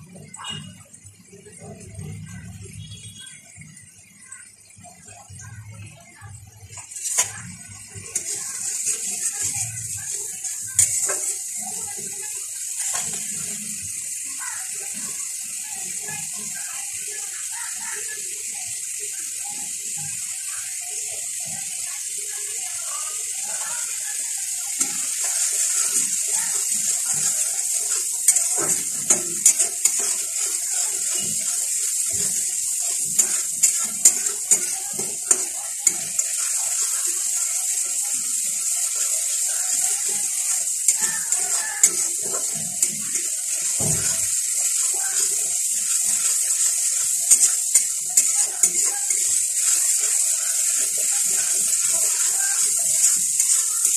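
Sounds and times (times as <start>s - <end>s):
masala sizzling in hot oil: 0.0s - 53.9s
metal spatula scraping pan: 8.1s - 9.8s, 24.8s - 37.4s.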